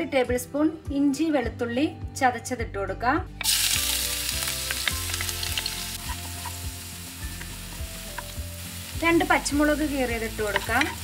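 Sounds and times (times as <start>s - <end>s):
garlic sizzling in oil: 3.4s - 11.0s
wooden spatula knocking pan: 10.3s - 11.0s.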